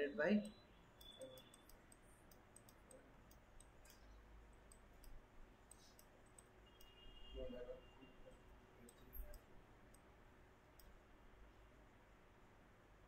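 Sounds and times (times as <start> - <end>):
computer mouse clicks: 0.4 - 7.0, 8.8 - 10.1, 10.7 - 11.0.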